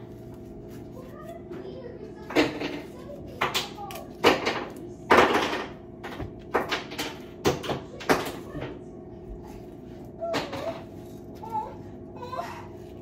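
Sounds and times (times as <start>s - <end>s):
steady low hum: 0.0s - 13.0s
kitchen knocks and clicks: 2.2s - 8.8s
small child vocal sound: 9.5s - 13.0s.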